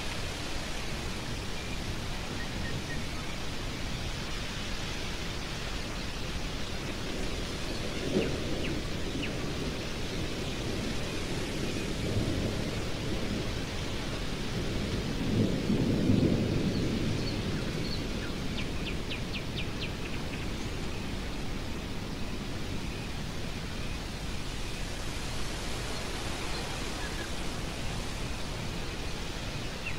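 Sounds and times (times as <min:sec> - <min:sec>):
stormy wind blowing: 0:00.0 - 0:29.9.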